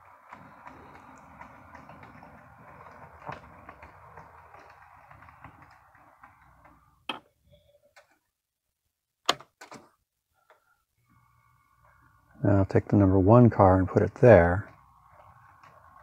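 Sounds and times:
model train motor whirring: 0.0 - 7.0, 11.0 - 16.0
wheels ticking over rails: 0.0 - 7.1, 11.8 - 16.0.

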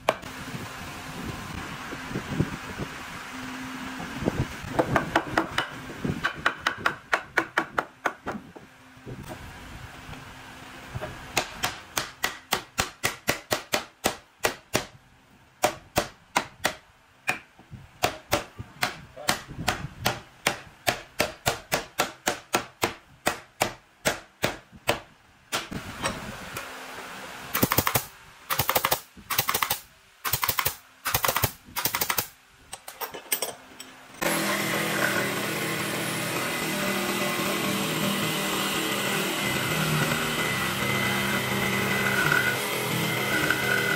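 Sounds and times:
sharp wooden knocks: 4.7 - 8.4, 11.3 - 15.0, 15.6 - 25.7
jigsaw cutting wood: 34.2 - 43.9.

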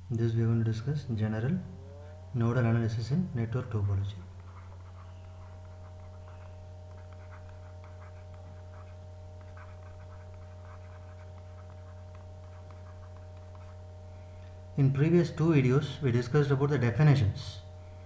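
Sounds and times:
low electrical hum: 0.0 - 18.0
pen scratching on paper: 4.4 - 13.8.

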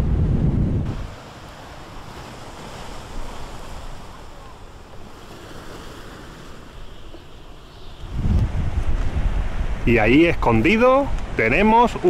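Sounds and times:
wind buffeting microphone: 0.0 - 1.2, 7.8 - 12.0.

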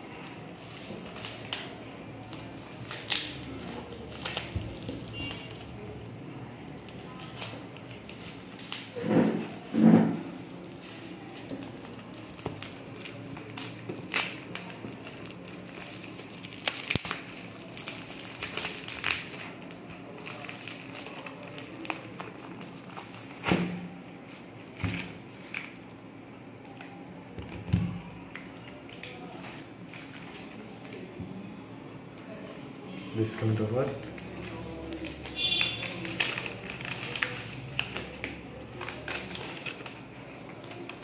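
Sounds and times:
plastic packaging crinkling: 0.6 - 5.9, 6.9 - 9.7, 10.6 - 26.0, 33.7 - 41.0.

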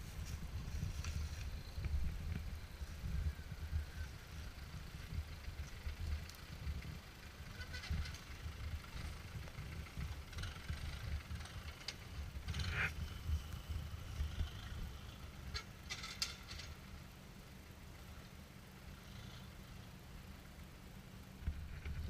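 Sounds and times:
engine rumbling at low revs: 0.0 - 22.0.

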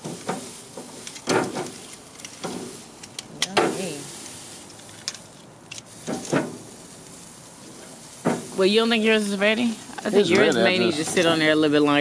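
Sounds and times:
metal tongs clacking on grill grate: 0.0 - 3.9, 4.6 - 6.6.

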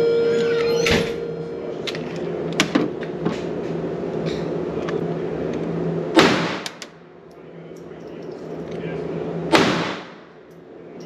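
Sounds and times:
steady background hum: 0.0 - 11.0
pistol shot: 6.2 - 6.7, 9.5 - 10.2.

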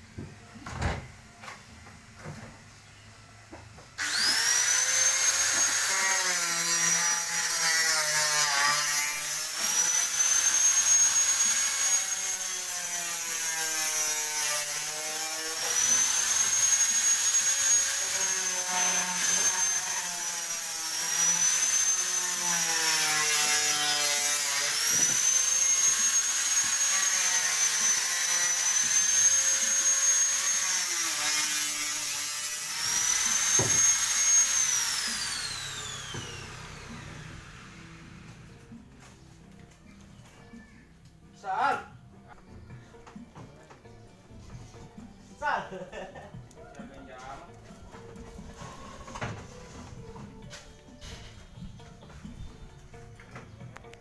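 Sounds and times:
angle grinder whining: 4.0 - 38.8.

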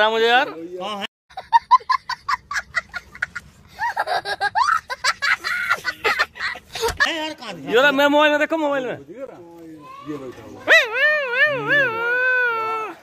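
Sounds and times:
high-pitched laughter bursts: 1.3 - 7.0.

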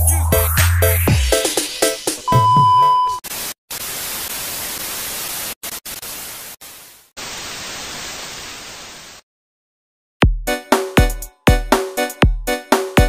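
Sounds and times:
static white noise hiss: 3.3 - 9.2.

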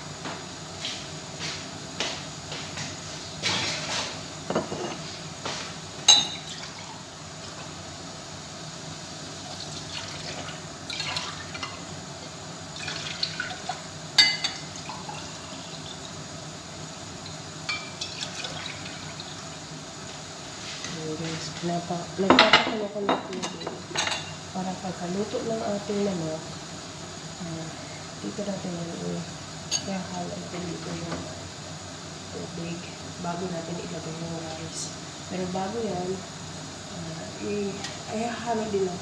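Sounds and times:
glass and cookware clinking: 4.5 - 5.0, 6.1 - 6.8, 14.2 - 15.2, 17.7 - 18.7, 22.3 - 24.4
water pouring into pan: 6.3 - 7.6, 9.3 - 11.9, 12.7 - 13.9, 17.8 - 19.6.

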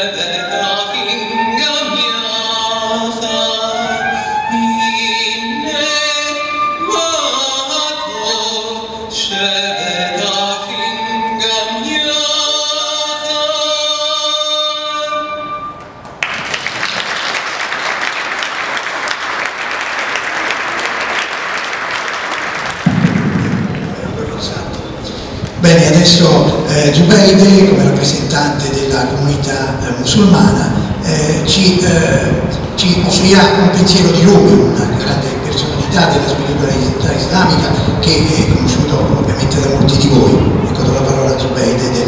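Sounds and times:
man singing solo: 0.0 - 15.6
audience applause: 16.1 - 24.4.

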